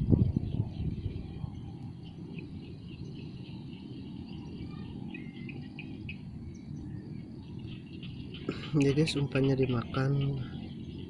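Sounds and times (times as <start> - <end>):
low steady rumble: 0.0 - 11.0
insects chirping: 0.4 - 11.0.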